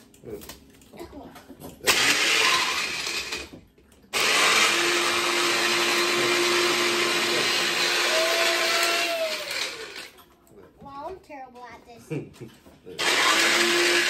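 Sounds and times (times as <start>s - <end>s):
blender running: 1.8s - 10.2s, 13.0s - 14.0s.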